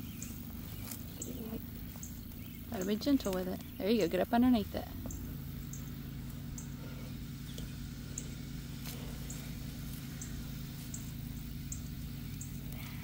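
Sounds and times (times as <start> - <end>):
steady low hum: 0.0 - 13.0
hand digging in dry soil: 8.7 - 11.1.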